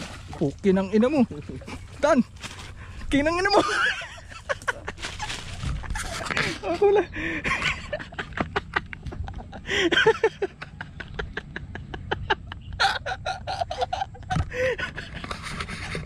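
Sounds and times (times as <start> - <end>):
person laughing breathlessly: 4.2 - 16.0.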